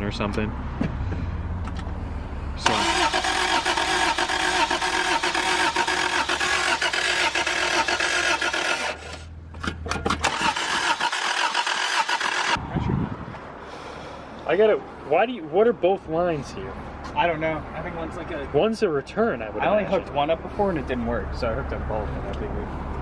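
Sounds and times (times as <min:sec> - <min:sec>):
car engine cranking: 0:02.6 - 0:12.6.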